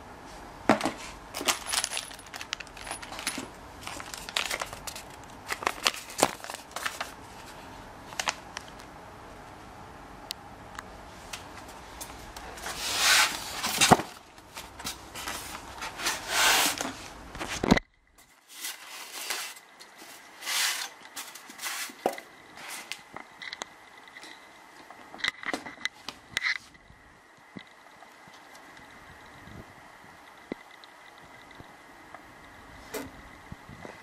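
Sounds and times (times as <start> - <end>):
cardboard box and packaging rustling: 0.7 - 8.8, 11.4 - 23.1.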